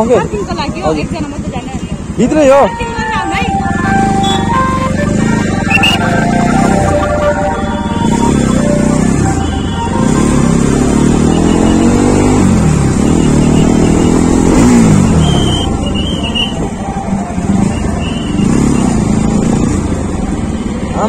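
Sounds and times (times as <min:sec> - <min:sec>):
motorcycle engines running: 0:00.0 - 0:21.0
short high beeps: 0:05.4 - 0:12.4, 0:15.0 - 0:16.6.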